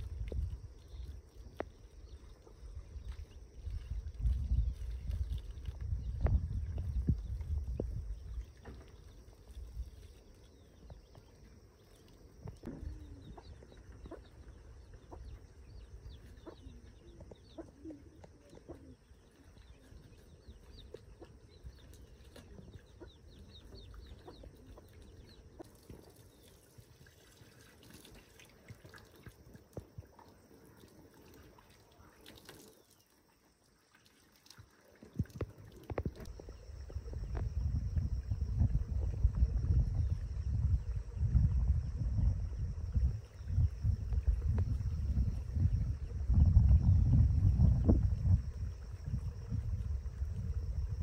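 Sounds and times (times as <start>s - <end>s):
water splashing from a hose: 0.0s - 13.0s, 18.0s - 51.0s
chickens clucking: 17.5s - 19.0s.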